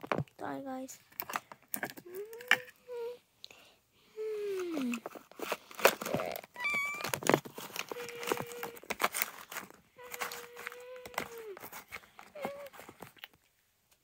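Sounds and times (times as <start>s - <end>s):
plastic clicks and rattles: 1.1s - 2.8s.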